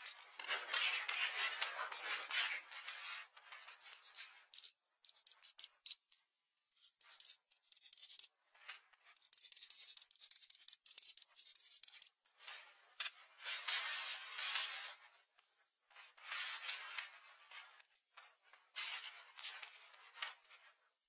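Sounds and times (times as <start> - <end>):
pencil scratching on paper: 0.0 - 6.0, 6.8 - 12.2.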